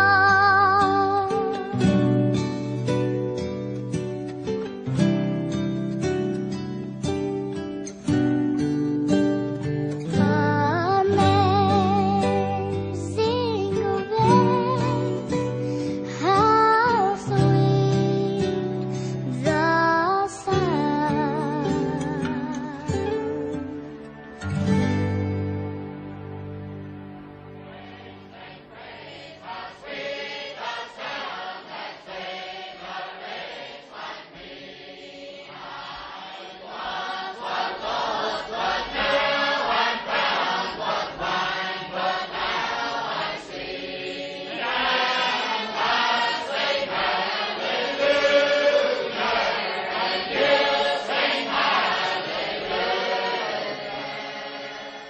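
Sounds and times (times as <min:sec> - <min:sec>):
choir singing slow chant: 0:27.5 - 0:55.0.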